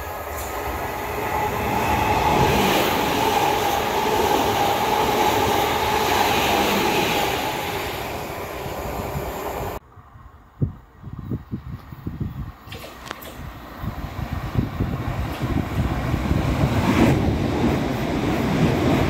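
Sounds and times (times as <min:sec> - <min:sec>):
train passing with whine: 0:00.0 - 0:10.3, 0:13.3 - 0:19.0
wind thumps on microphone: 0:10.6 - 0:19.0.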